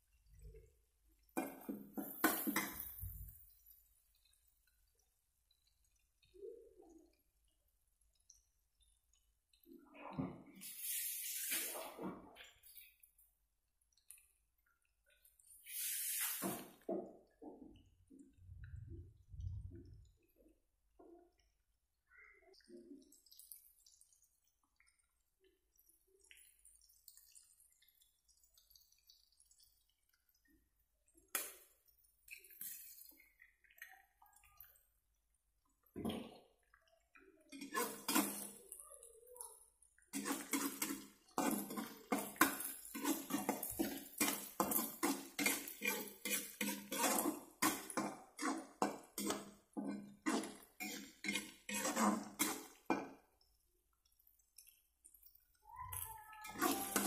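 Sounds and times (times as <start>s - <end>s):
eggs frying: 0.0s - 6.4s, 7.0s - 9.7s, 22.9s - 57.0s
metal spatula scraping a wok: 37.6s - 38.5s, 40.2s - 52.8s, 56.5s - 57.0s.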